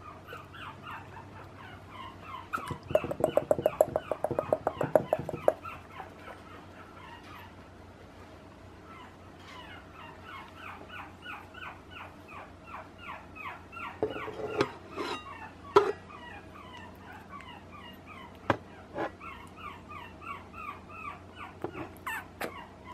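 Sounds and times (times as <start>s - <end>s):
puppy whimpering: 0.0s - 7.6s, 8.8s - 22.9s
sharp knocks: 2.6s - 5.6s.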